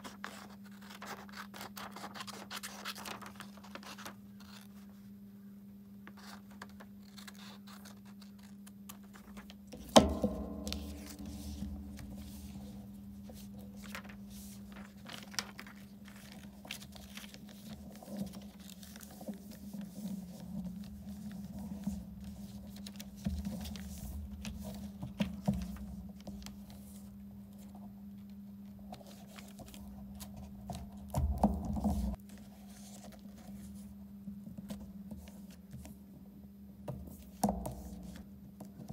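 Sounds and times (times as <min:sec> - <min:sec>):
paper rustling and folding: 0:00.0 - 0:05.2, 0:06.0 - 0:28.3, 0:28.9 - 0:33.9
steady low hum: 0:09.7 - 0:15.2
sharp knock with ring: 0:09.8 - 0:12.8.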